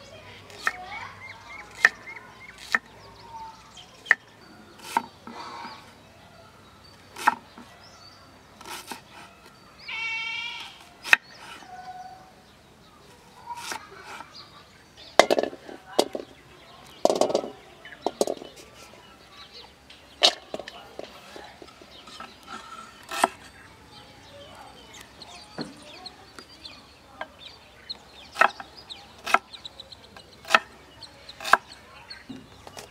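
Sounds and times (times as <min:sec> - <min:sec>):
cleaver chopping on wooden board: 0:01.7 - 0:02.0, 0:23.1 - 0:23.4, 0:28.4 - 0:28.6, 0:29.2 - 0:29.5, 0:30.4 - 0:30.7, 0:31.4 - 0:31.6.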